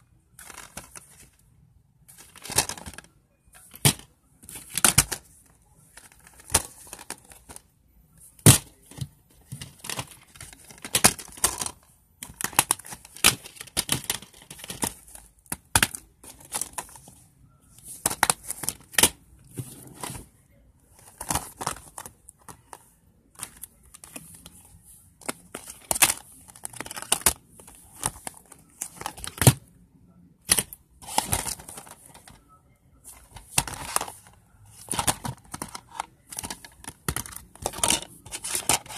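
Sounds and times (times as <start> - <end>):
rustling and crinkling: 0.0 - 29.7, 30.5 - 38.9
plastic cases clicking: 2.1 - 5.3, 8.4 - 17.1, 25.2 - 29.7, 30.4 - 32.4, 33.1 - 38.9.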